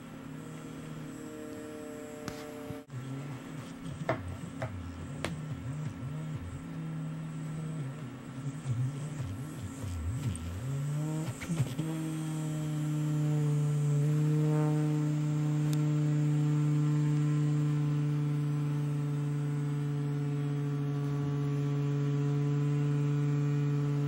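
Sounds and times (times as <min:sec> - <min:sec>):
toy vibration motor buzzing: 0:00.6 - 0:16.2.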